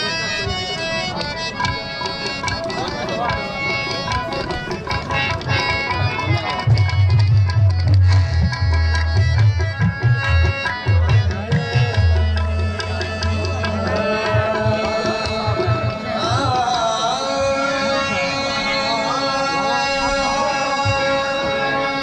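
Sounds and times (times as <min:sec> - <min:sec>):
melody of pitched instruments: 0:00.0 - 0:22.0.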